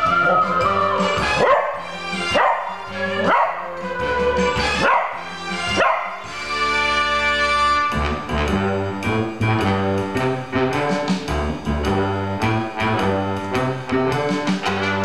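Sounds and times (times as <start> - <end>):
dog howling: 0.0 - 6.3
brass-led theme music: 0.0 - 15.0.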